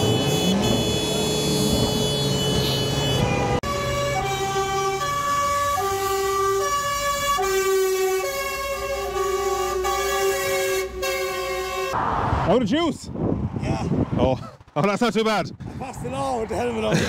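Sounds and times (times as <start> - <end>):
fire engine sirens: 0.0 - 12.4.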